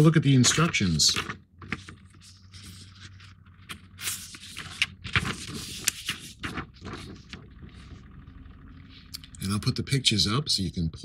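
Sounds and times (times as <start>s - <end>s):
paper rustling and crackling: 0.3s - 8.2s.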